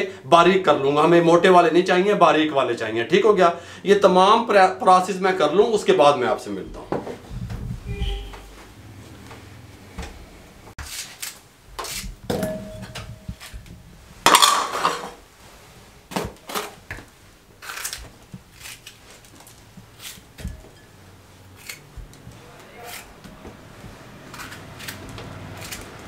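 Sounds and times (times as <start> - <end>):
clatter of bowls: 14.2 - 15.2
utensils and bowls clinking: 14.2 - 15.2
knife cutting vegetable: 22.8 - 23.2, 24.3 - 26.0.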